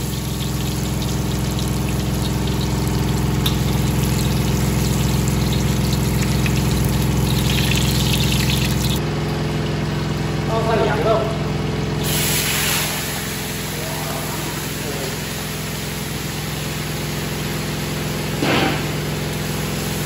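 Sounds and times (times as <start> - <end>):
food sizzling in hot oil: 0.0 - 9.0, 12.0 - 13.6
low mechanical hum: 0.0 - 20.0.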